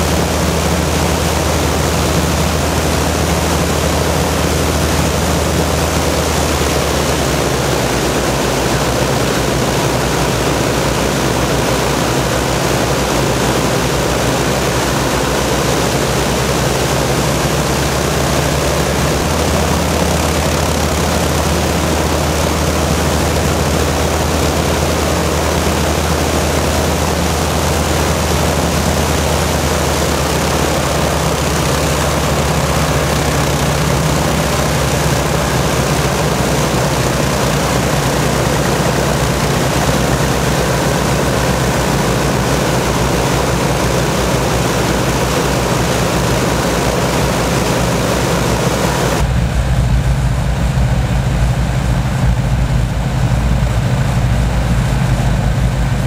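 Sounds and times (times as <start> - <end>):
piston aircraft engines droning: 0.0 - 56.0
propeller rush: 0.0 - 56.0.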